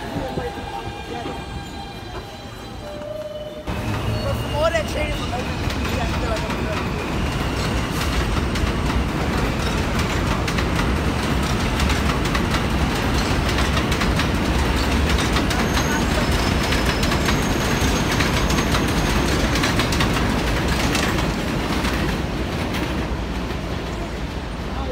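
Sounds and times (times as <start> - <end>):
faint wheel squeal: 0.4 - 7.9, 15.5 - 19.6
train wheels clicking over rail joints: 5.1 - 24.0.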